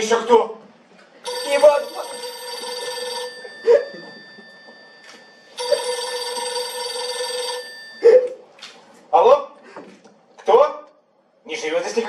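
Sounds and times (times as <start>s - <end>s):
telephone ringing: 1.2s - 8.1s.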